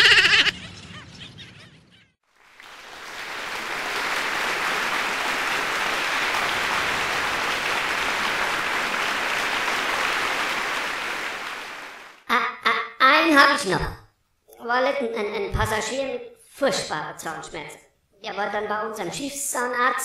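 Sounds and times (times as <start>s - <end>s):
audience applause: 2.4s - 12.2s.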